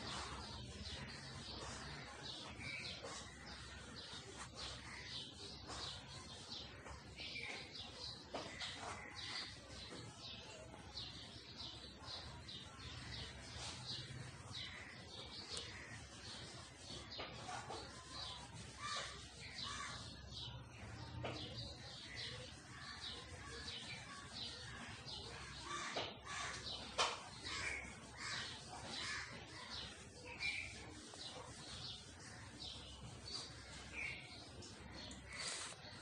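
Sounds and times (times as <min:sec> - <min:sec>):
birds calling: 0:11.4 - 0:36.0.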